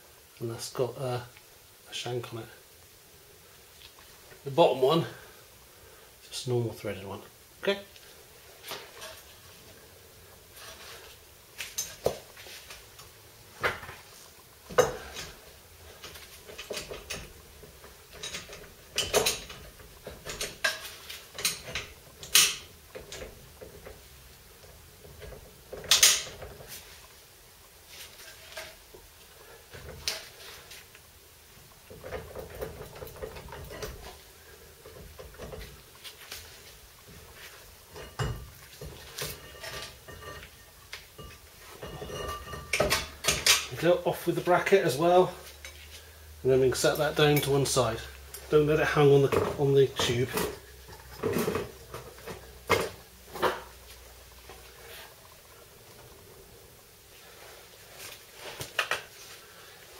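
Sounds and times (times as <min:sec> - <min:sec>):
metallic clinks and knocks: 0:16.1 - 0:23.9.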